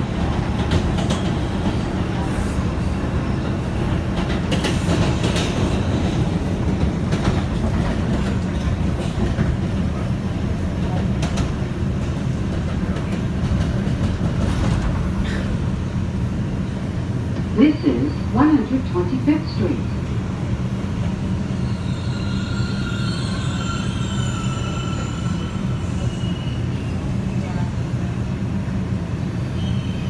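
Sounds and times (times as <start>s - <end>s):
subway car rumble: 0.0s - 30.0s.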